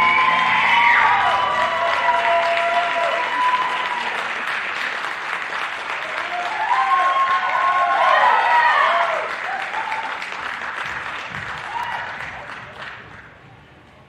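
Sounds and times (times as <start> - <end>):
whoops and shouts: 0.0 - 4.2, 6.2 - 10.2, 11.6 - 12.4
audience applauding: 0.0 - 13.4.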